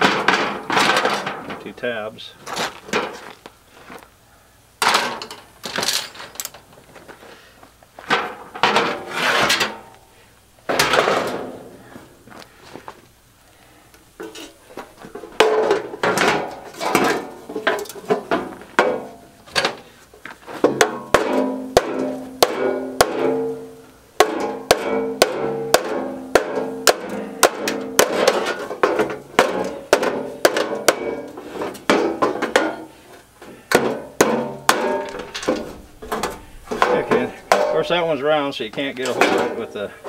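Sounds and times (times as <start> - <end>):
hammer striking metal: 20.8 - 31.3, 33.7 - 37.9.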